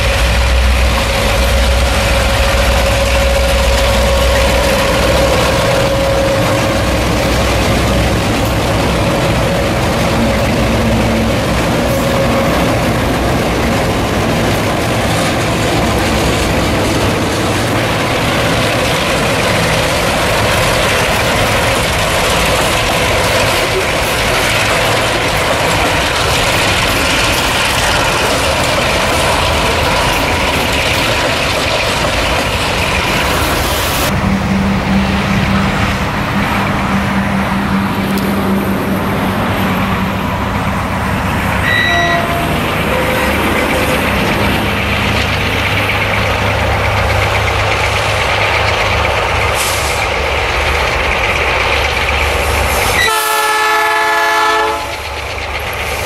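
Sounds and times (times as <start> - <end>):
locomotive air horn: 0.0 - 8.2, 41.6 - 43.9, 52.9 - 55.0
distant diesel engine drone: 0.0 - 56.0
freight train rolling past: 0.0 - 56.0.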